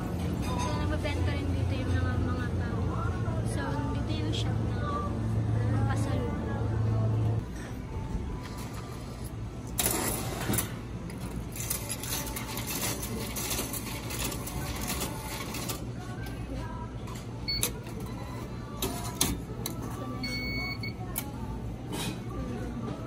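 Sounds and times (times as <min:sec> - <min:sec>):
vending machine mechanical clatter: 0:08.4 - 0:22.3.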